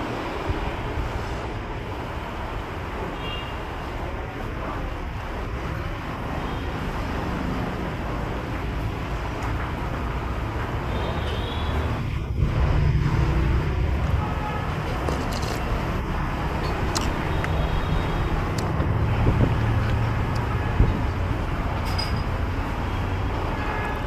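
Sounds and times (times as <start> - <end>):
street traffic noise: 0.0 - 24.0
vehicle passing rumble: 11.8 - 23.5.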